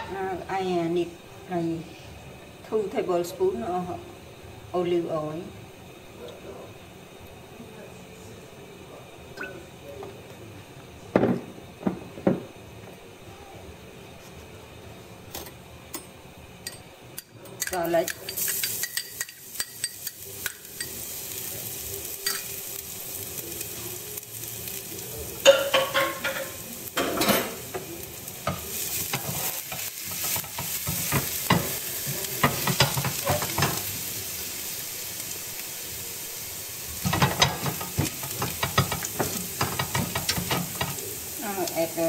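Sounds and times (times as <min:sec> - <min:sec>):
garlic sizzling in oil: 0:17.6 - 0:42.0.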